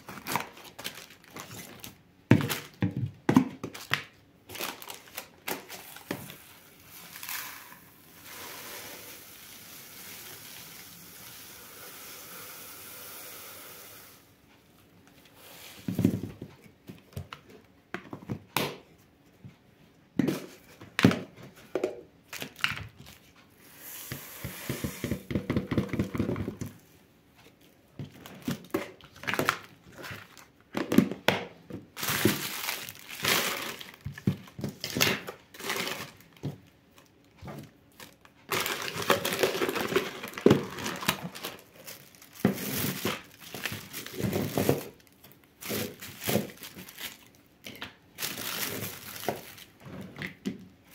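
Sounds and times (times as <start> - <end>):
paper and plastic crinkling: 0.0 - 3.0, 3.6 - 7.9, 27.4 - 31.1, 31.9 - 50.4
tea leaves poured into canister: 6.9 - 14.2
plastic containers knocking on table: 24.7 - 26.7.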